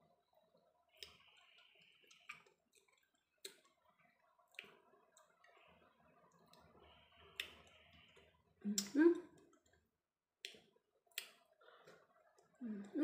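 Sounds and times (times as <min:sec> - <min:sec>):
soft eating clicks: 0:00.9 - 0:05.6.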